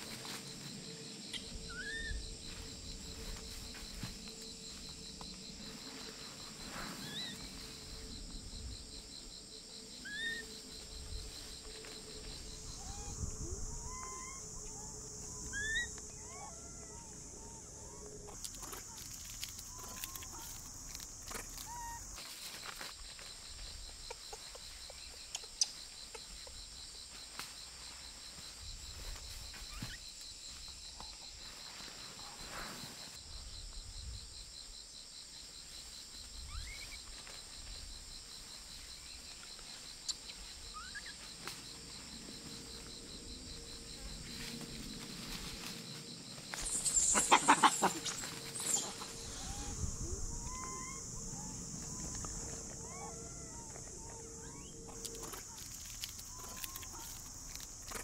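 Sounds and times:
insects buzzing: 0:00.0 - 0:58.0
loud animal call: 0:46.8 - 0:55.0.

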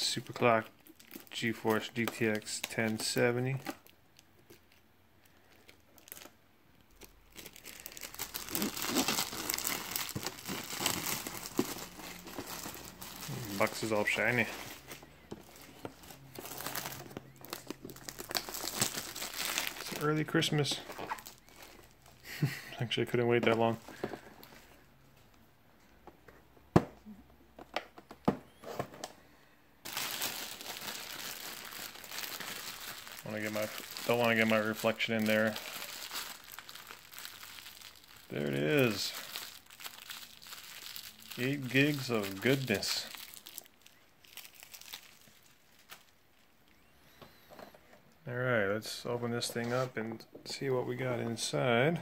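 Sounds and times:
shrink wrap crinkling and tearing: 0:00.0 - 0:22.4, 0:29.8 - 0:46.8.

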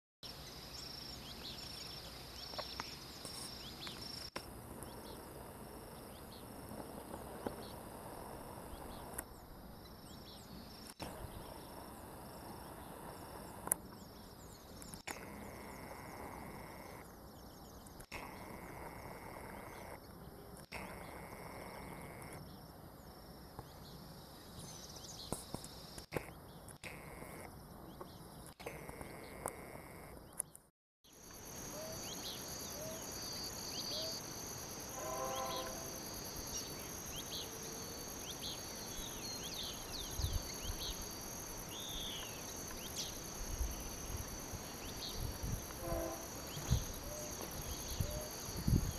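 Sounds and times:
insects trilling: 0:00.2 - 0:30.3, 0:31.1 - 0:48.9
high pulsing insect note: 0:31.2 - 0:48.9.

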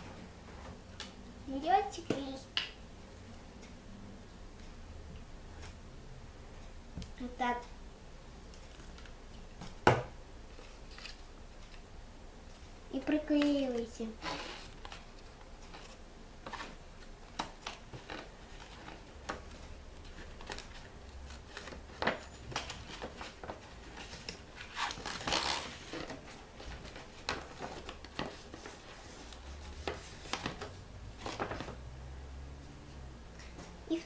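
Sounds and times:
paper rustling and crinkling: 0:14.2 - 0:31.8.

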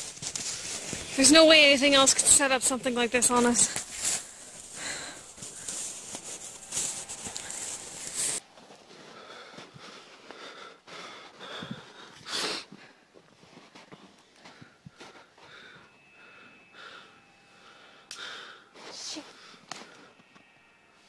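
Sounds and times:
rustling and crunching: 0:00.0 - 0:10.4
person breathing heavily: 0:03.6 - 0:13.1.

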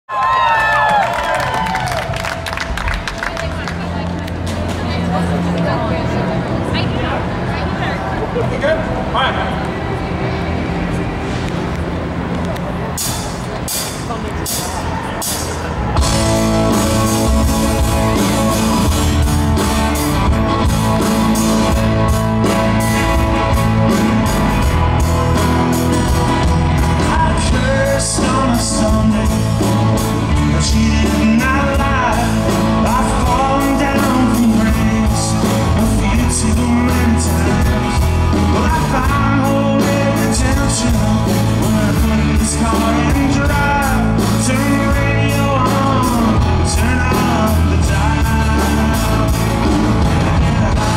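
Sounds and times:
live rock band playing: 0:09.8 - 0:50.9.

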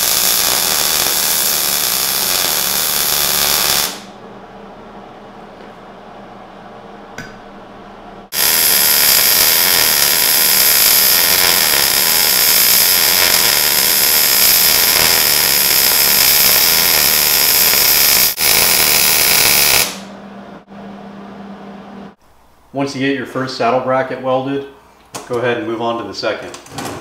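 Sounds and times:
arc welding hiss: 0:00.0 - 0:04.1, 0:08.4 - 0:20.1.

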